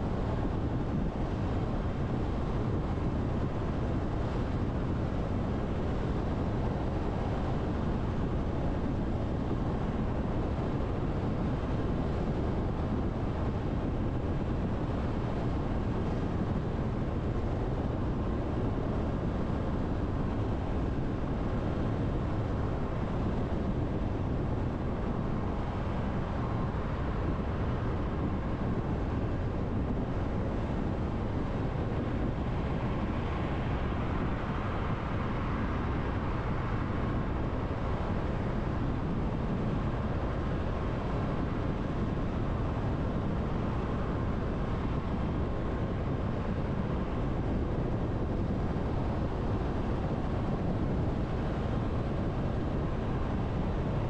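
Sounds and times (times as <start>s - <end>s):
wind noise: 0.0s - 54.0s.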